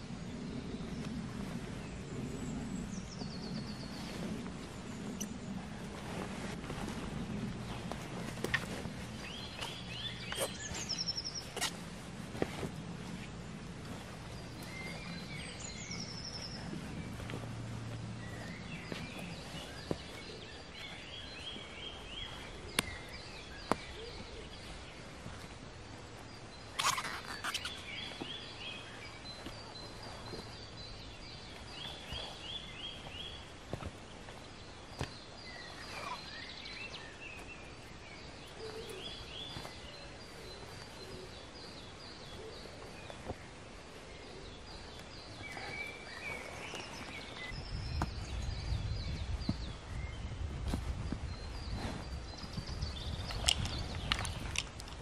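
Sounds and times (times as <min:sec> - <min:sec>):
low rumbling noise: 0:00.0 - 0:26.8
songbirds singing: 0:00.0 - 0:55.0.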